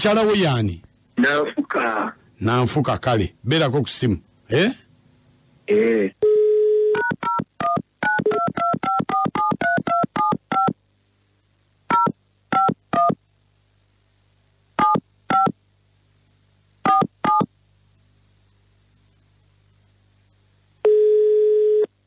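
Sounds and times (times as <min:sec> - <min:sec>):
telephone dial tone: 0:20.8 - 0:21.9.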